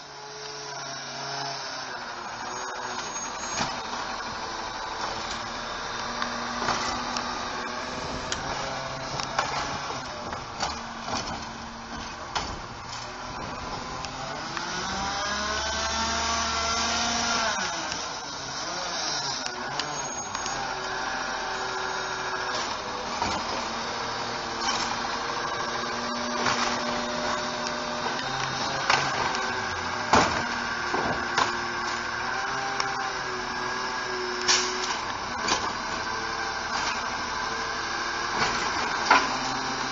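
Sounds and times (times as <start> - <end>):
truck engine and hydraulics: 0.0 - 39.9
knocks and clanks of cart and arm: 9.1 - 13.6, 28.4 - 32.0, 34.5 - 35.9, 38.3 - 39.9.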